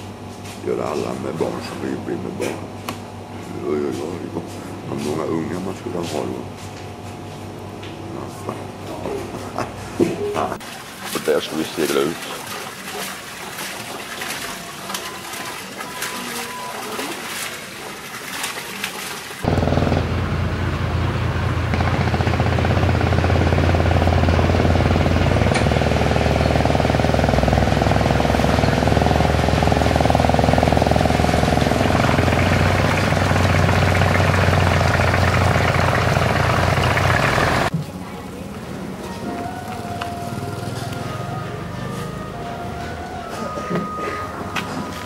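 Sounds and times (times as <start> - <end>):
boat engine chugging: 19.4 - 37.7.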